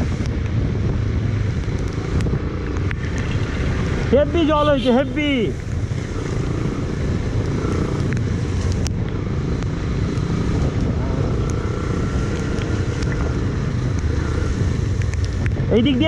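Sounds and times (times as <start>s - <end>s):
wind buffeting microphone: 0.0s - 4.6s, 5.2s - 16.0s
motorcycle engine rumble: 0.0s - 16.0s
rain: 0.0s - 16.0s
tyres running through water: 2.6s - 4.4s
sharp ticks: 5.5s - 15.6s.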